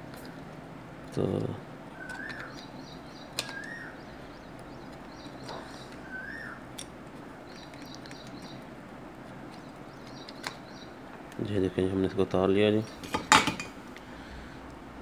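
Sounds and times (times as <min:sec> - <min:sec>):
birds chirping: 0:00.0 - 0:15.0
whistled bird call: 0:02.0 - 0:02.7, 0:03.4 - 0:04.0, 0:05.7 - 0:06.6.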